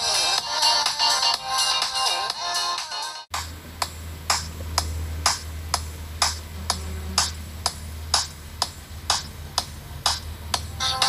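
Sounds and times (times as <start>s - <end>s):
sharp click beat: 3.3s - 10.7s
low bass drone: 3.3s - 10.8s.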